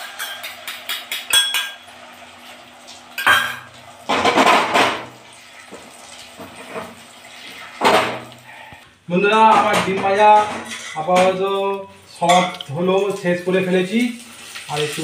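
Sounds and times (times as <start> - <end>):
metal spatula clinking on pan: 0.0 - 1.8
omelette frying: 0.0 - 15.0.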